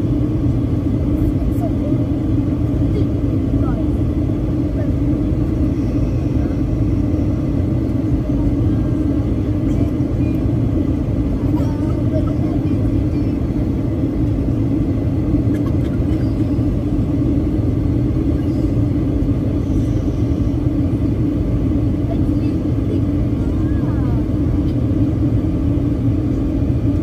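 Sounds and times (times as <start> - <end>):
airliner cabin rumble: 0.0 - 27.0.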